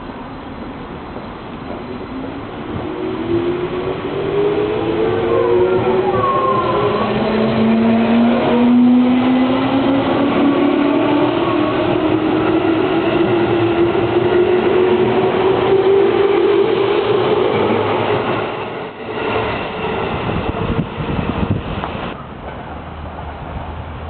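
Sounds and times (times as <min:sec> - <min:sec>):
wheels rumbling on rail: 0:00.0 - 0:24.0.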